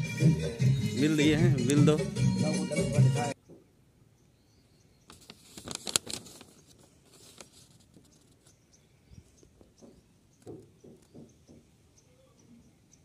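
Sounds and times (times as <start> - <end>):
paper rustling and crackling: 5.1 - 8.5.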